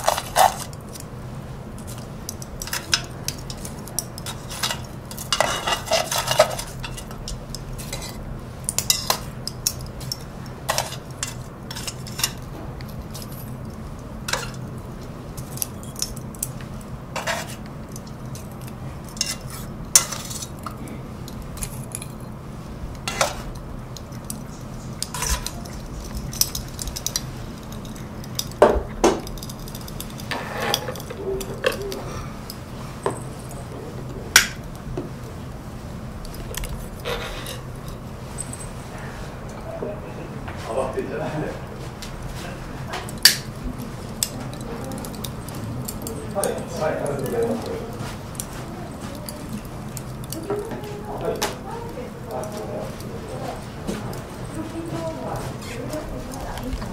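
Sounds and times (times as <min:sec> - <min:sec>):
charcoal pieces knocking: 0:01.8 - 0:22.2, 0:23.0 - 0:32.2
metal chopsticks clinking: 0:01.8 - 0:33.6, 0:44.1 - 0:56.9.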